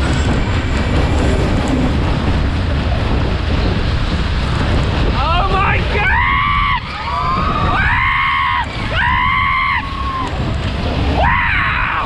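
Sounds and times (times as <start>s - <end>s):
wind rushing across microphone: 0.0s - 12.0s
riders screaming: 5.2s - 12.0s.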